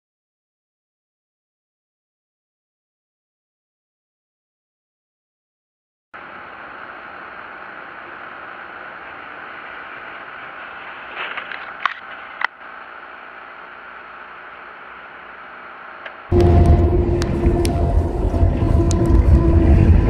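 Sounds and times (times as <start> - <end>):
tyre noise on wet road: 6.2 - 20.0
scraping rustle: 10.6 - 12.5.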